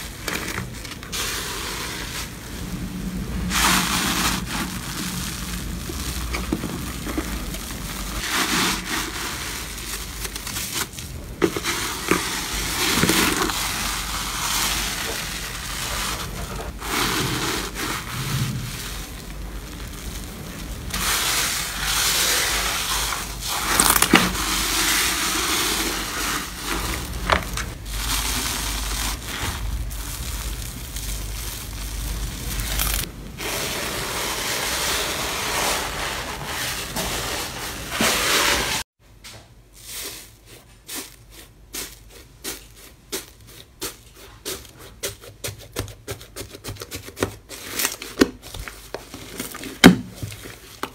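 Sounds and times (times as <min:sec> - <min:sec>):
wet squishing slime: 0:00.0 - 0:33.6.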